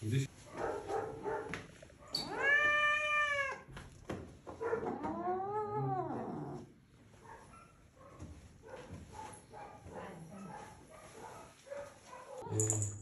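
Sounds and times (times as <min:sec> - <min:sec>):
cat yowling: 0:02.1 - 0:03.7, 0:04.7 - 0:06.6.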